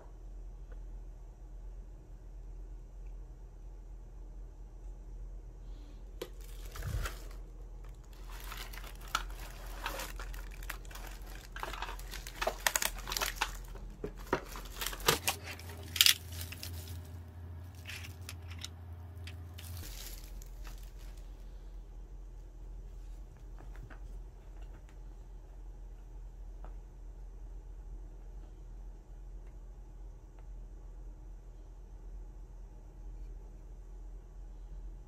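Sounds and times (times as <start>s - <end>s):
plastic film crinkling and tearing: 6.2s - 18.5s, 19.5s - 21.4s.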